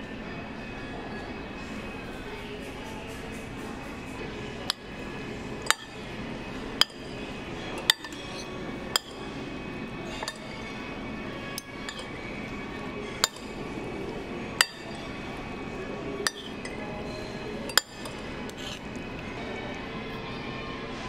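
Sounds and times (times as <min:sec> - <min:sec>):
cutlery clinking on ceramic plate: 0:04.7 - 0:05.0, 0:05.6 - 0:06.0, 0:06.8 - 0:07.2, 0:07.8 - 0:09.3, 0:10.0 - 0:13.7, 0:14.6 - 0:15.2, 0:16.2 - 0:19.0.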